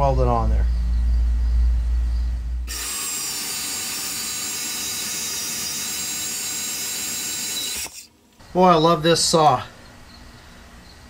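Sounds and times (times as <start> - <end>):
low rumble: 0.0 - 2.7
band saw cutting steel: 2.7 - 8.1.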